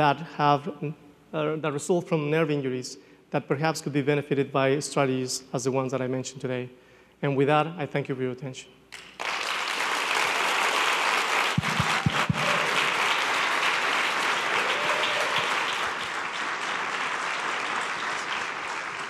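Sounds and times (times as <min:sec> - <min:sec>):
audience applauding: 0:09.0 - 0:19.0.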